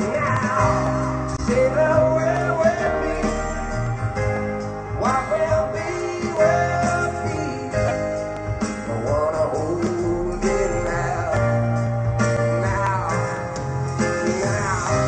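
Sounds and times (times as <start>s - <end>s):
song with singing voice: 0.0s - 15.0s.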